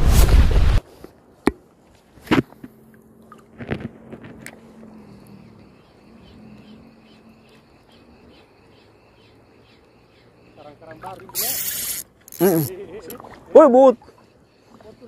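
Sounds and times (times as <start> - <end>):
fishing reel ticking: 11.4 - 12.6.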